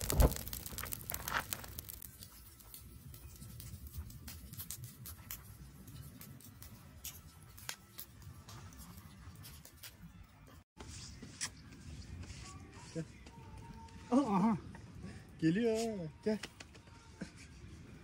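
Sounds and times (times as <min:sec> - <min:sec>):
low fire rumble: 0:00.0 - 0:09.2
charcoal fire crackling and popping: 0:00.0 - 0:10.2.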